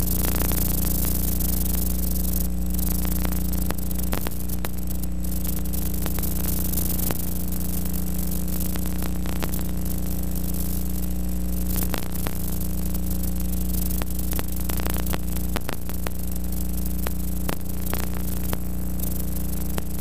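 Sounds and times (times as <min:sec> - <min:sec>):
electrical hum and hiss: 0:00.0 - 0:20.0
clicks and crackles: 0:02.8 - 0:07.2, 0:11.7 - 0:12.5, 0:13.9 - 0:16.2, 0:17.0 - 0:18.6.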